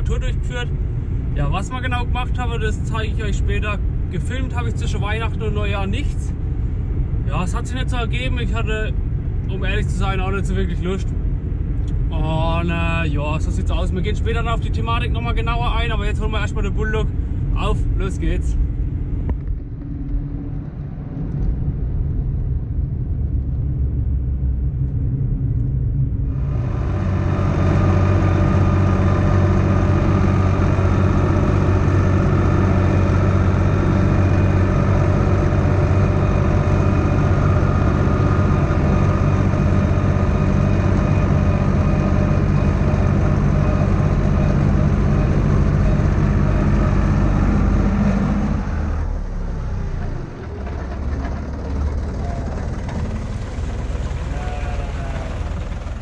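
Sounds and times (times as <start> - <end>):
low vehicle rumble: 0.0 - 56.0
tractor diesel engine running: 26.2 - 56.0.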